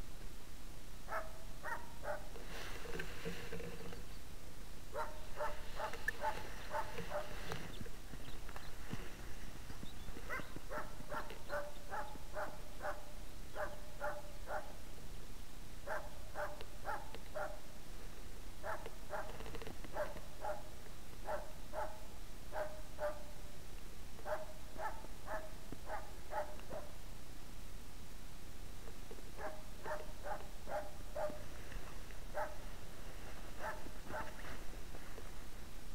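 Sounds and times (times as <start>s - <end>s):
dog barking: 1.1s - 2.4s, 4.9s - 7.4s, 10.3s - 14.8s, 15.8s - 17.7s, 18.6s - 23.3s, 24.2s - 27.0s, 29.4s - 31.4s, 32.3s - 32.6s, 33.6s - 34.4s.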